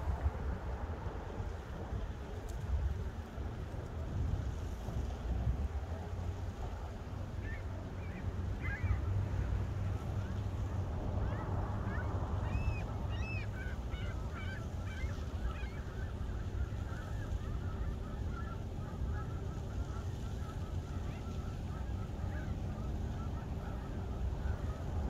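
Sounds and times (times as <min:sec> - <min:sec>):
wind rumble on microphone: 0:00.0 - 0:25.0
gulls calling: 0:07.0 - 0:25.0.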